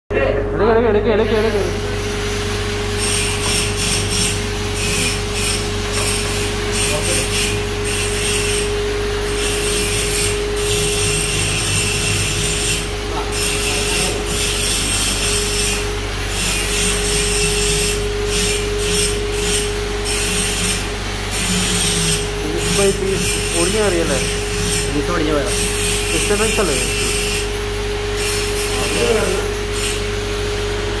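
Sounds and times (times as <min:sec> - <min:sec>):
steady hum: 0:00.1 - 0:31.0
hand tool rasping against metal: 0:03.0 - 0:27.5.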